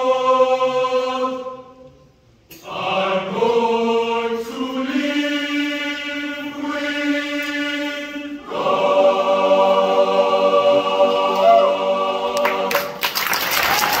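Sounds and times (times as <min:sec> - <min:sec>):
boys' choir singing a chord: 0:00.0 - 0:01.9, 0:02.5 - 0:13.0
audience applause: 0:12.4 - 0:14.0.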